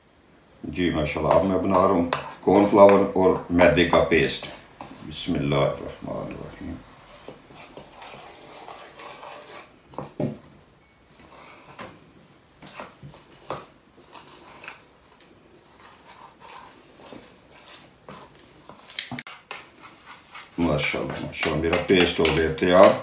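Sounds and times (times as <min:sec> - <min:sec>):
metal spoon scraping ceramic bowl: 0:07.0 - 0:09.7.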